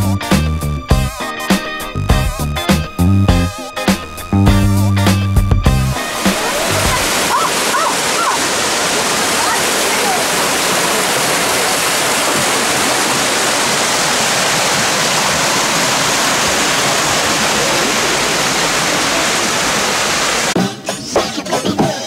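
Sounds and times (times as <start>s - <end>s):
waterfall splashing over rocks: 6.0s - 20.6s.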